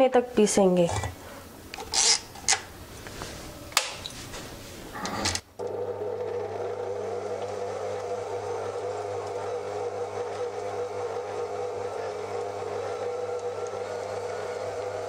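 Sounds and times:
stand mixer motor humming: 5.6s - 15.0s.

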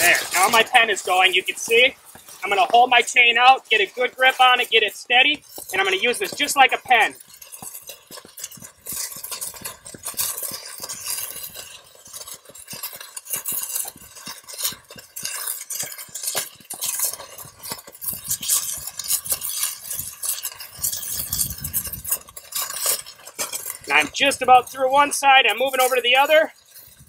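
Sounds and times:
breaching rod burning through steel: 0.0s - 27.0s.

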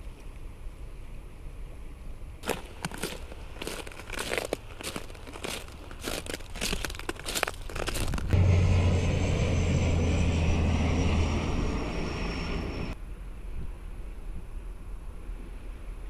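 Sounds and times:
footsteps crunching on pebbles: 2.4s - 8.4s
airliner flying overhead: 8.0s - 13.0s
high engine whine: 8.0s - 13.0s.

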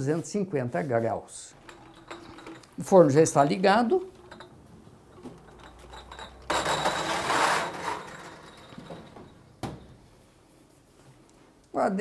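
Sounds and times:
metal tray scraping rattle: 1.6s - 9.5s
glass jars clinking: 1.6s - 10.1s.

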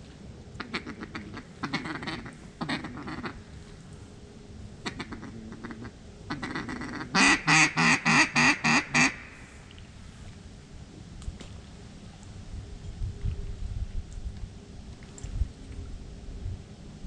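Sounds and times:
duck quacking: 0.6s - 3.4s, 4.8s - 9.6s.

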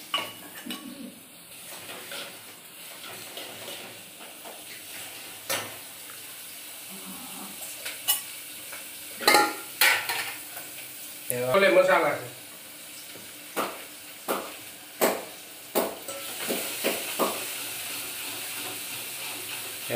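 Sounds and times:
vegetables sizzling in oil: 0.0s - 19.9s
spoon clinking on cookware: 9.2s - 10.4s, 16.1s - 16.4s.

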